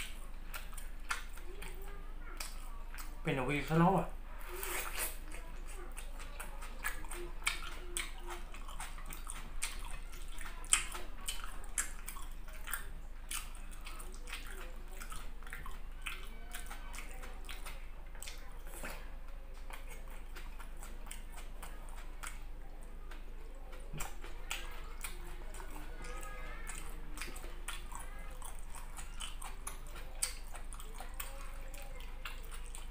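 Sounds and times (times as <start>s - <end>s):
wet chewing and lip-smacking: 0.0s - 32.9s.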